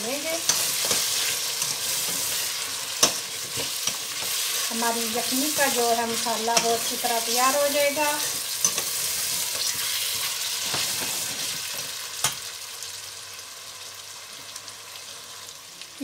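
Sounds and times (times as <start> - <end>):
meat sizzling in a pot: 0.0 - 16.0
spoon scraping a pot: 0.4 - 4.7.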